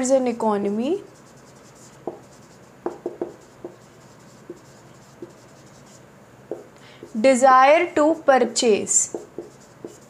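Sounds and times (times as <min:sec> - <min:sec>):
marker writing on whiteboard: 0:01.0 - 0:07.3, 0:09.0 - 0:10.0.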